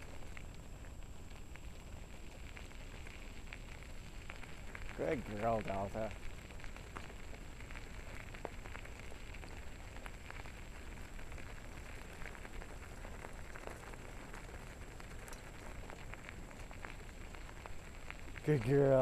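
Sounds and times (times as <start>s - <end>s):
tyres rolling over gravel: 18.4s - 19.0s.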